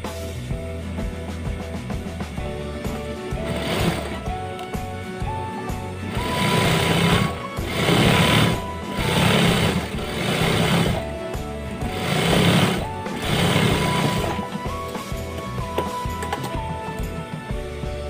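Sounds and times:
industrial sewing machine stitching: 3.3s - 4.7s, 6.0s - 15.1s.

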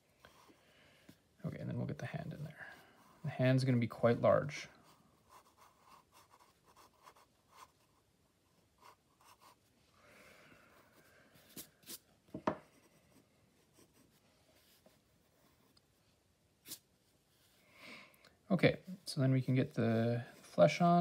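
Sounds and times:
pencil scratching on paper: 4.7s - 9.7s, 11.0s - 15.7s
pencil taps: 12.3s - 12.7s.

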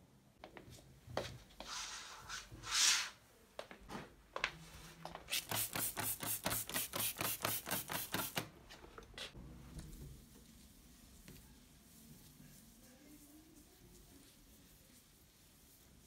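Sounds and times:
spray bottle spraying: 5.3s - 8.4s.

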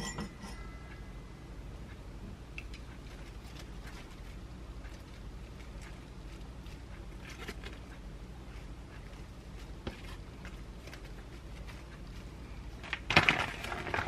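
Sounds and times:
crackling and clatter: 8.8s - 14.0s.

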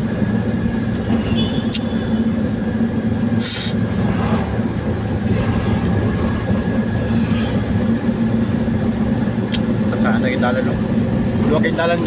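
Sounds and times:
vehicle engine and road rumble: 0.0s - 12.0s
brief hiss: 3.4s - 3.8s.

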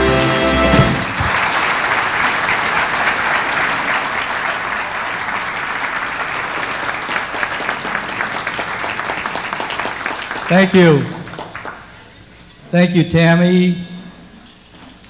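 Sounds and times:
held musical notes: 0.0s - 1.2s
audience applauding: 0.0s - 12.1s.

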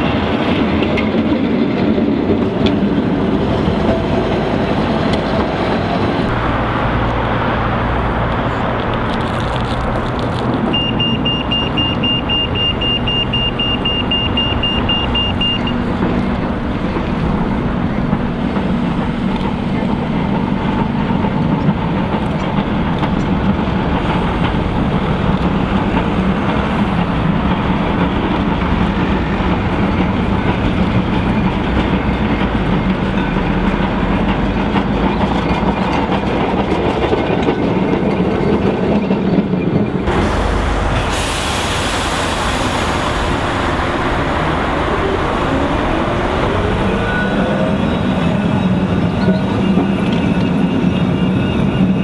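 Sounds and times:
tram running hum: 0.0s - 52.0s
wheels clicking over rails: 8.3s - 41.1s.

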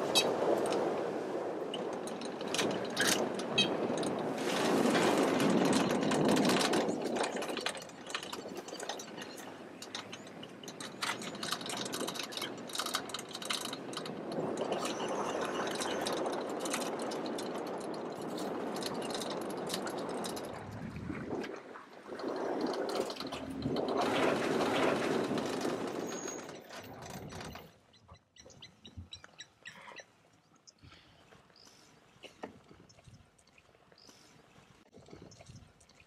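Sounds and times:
vehicle clicks and rattles: 1.7s - 29.2s.

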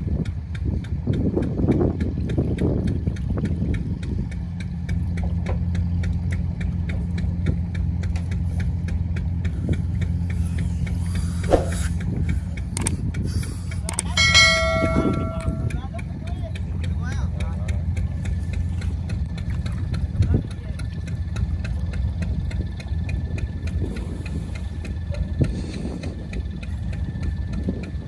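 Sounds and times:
engine idling: 0.0s - 28.0s
light regular clicks: 12.6s - 13.1s, 13.8s - 14.2s.

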